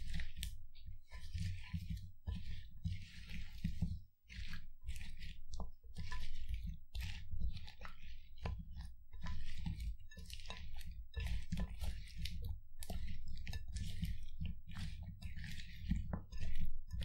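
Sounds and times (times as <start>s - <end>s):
spatula stirring cucumbers in bowl: 0.0s - 17.0s.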